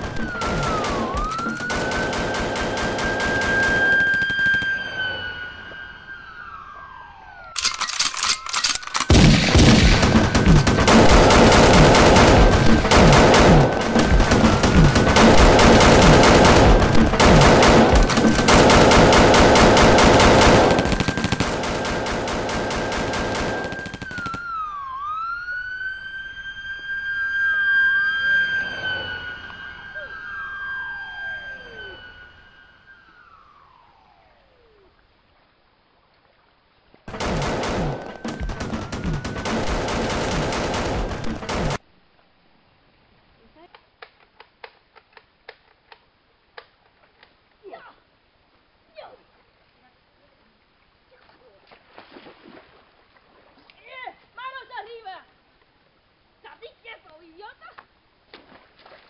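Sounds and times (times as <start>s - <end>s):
rapid automatic gunfire: 0.0s - 4.3s, 9.1s - 24.4s, 37.1s - 41.8s
high electronic whistle: 3.4s - 6.4s, 27.8s - 34.0s.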